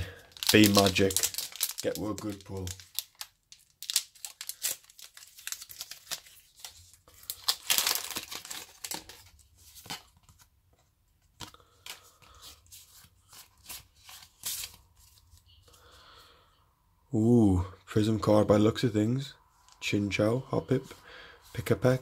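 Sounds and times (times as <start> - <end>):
foil wrapper tearing and crinkling: 0.0 - 9.3.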